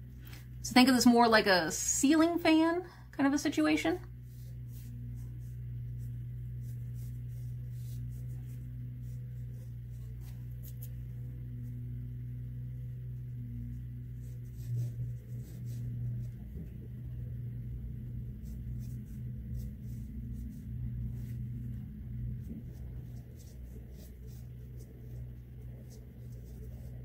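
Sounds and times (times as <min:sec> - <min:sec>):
steady low hum: 0:00.0 - 0:27.0
pencil scratching on paper: 0:04.3 - 0:11.0, 0:13.6 - 0:16.8, 0:18.1 - 0:27.0.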